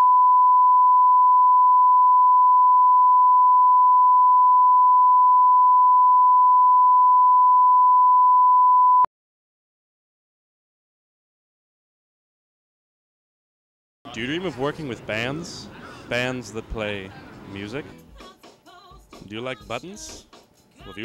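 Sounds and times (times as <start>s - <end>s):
steady pure test tone beep: 0.0s - 9.1s.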